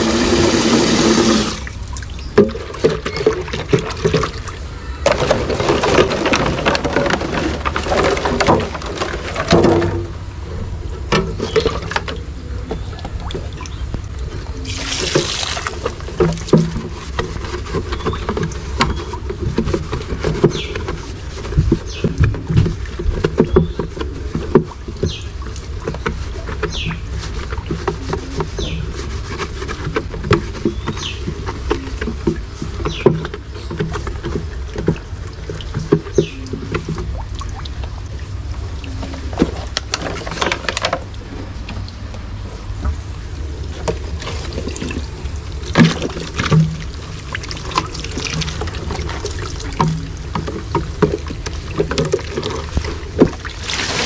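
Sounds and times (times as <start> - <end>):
plastic rubbing and squeaking: 0.0 - 10.2, 11.0 - 37.3
water trickling and splashing: 0.0 - 10.3, 11.1 - 54.0.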